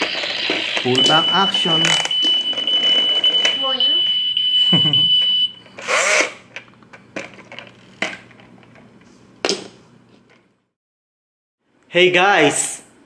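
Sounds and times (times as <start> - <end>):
toy truck high-pitched whine: 0.0 - 3.4, 5.8 - 6.4.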